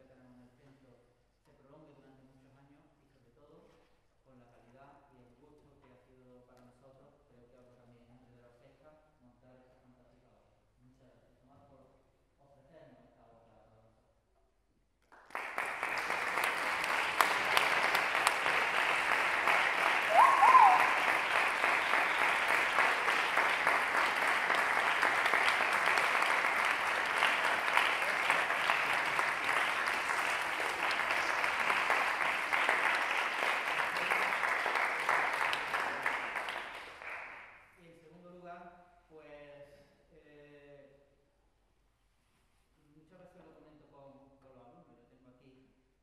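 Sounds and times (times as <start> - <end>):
audience applauding: 15.1 - 37.5
short pitched call: 20.1 - 21.0.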